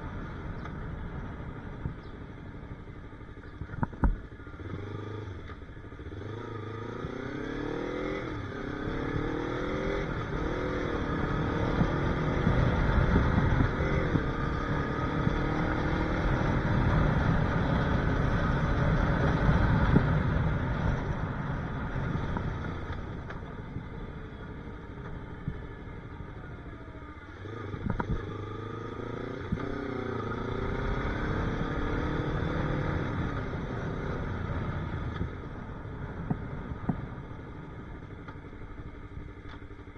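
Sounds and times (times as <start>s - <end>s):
motorcycle engine accelerating: 0.0s - 39.9s
wind rushing over microphone: 10.4s - 22.9s.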